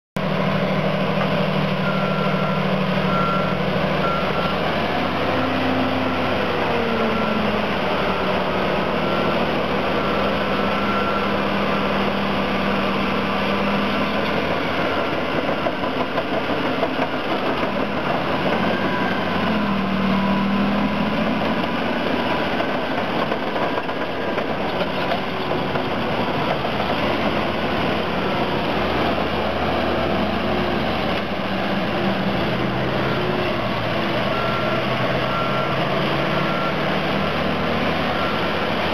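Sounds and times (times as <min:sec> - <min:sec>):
bulldozer diesel engine under load: 0:00.2 - 0:38.9
reversing alarm beeping: 0:01.8 - 0:15.4, 0:18.4 - 0:21.4, 0:32.8 - 0:38.9.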